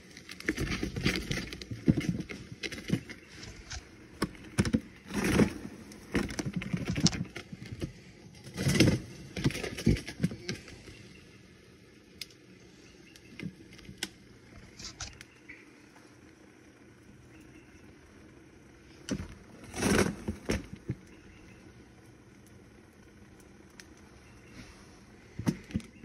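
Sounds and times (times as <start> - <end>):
cans rolling in plastic cooler: 0.0 - 10.9, 19.1 - 21.4.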